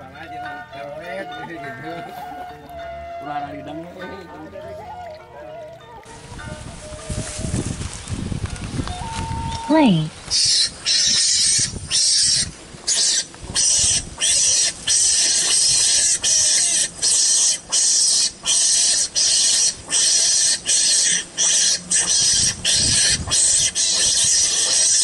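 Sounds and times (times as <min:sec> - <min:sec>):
hissy chirring animal call: 0:09.6 - 0:25.0.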